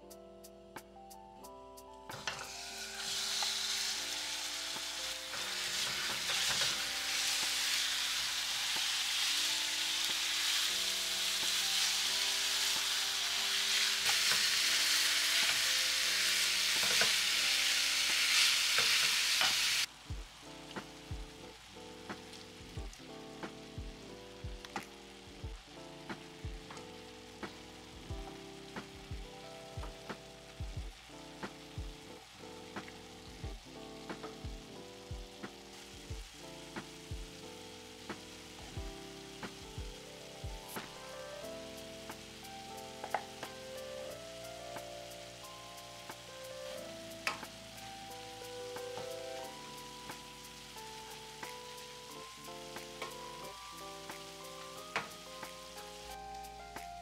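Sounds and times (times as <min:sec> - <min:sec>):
crackling hiss: 0:00.0 - 0:57.0
food sizzling in a frying pan: 0:02.1 - 0:57.0
background music with drum beat: 0:18.9 - 0:57.0.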